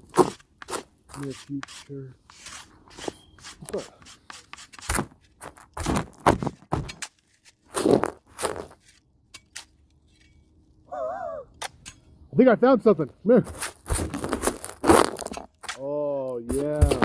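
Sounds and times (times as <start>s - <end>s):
dirt scraping against microphone: 0.0s - 9.0s, 13.4s - 15.8s, 16.4s - 17.0s.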